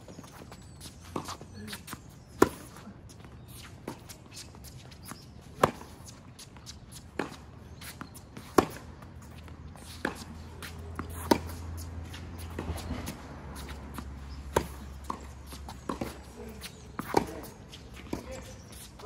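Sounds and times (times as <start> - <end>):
racket hitting tennis ball: 1.2 - 2.8, 5.0 - 8.9, 9.8 - 19.0.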